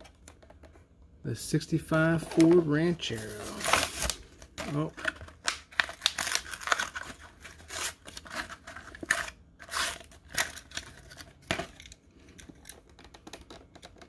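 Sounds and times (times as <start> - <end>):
cardboard ripping: 3.1 - 11.2.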